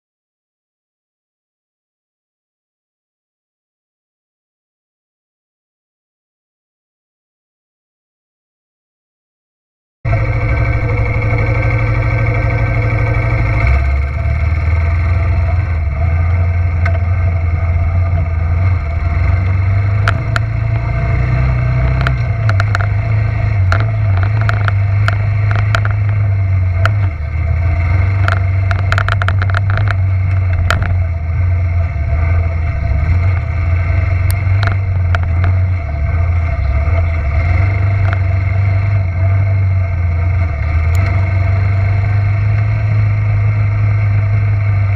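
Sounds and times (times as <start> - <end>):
sharp clicks and rattles: 10.1 - 21.0, 21.8 - 41.5
atv engine running: 10.1 - 44.9.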